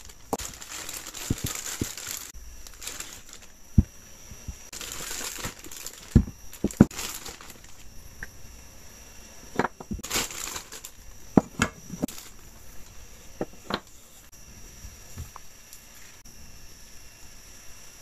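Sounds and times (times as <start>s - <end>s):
plastic bags crinkling: 0.0s - 7.9s, 9.6s - 13.9s.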